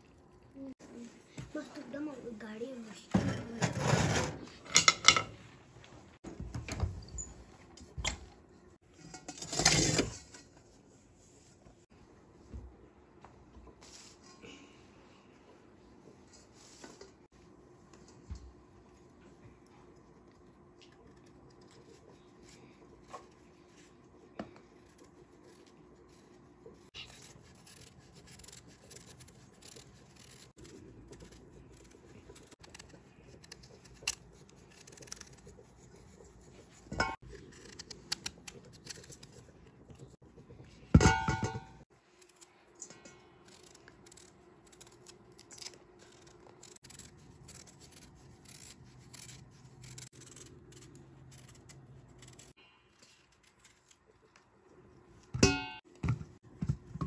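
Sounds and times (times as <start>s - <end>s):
knife scraping turnip skin: 24.7s - 39.5s, 43.4s - 52.6s.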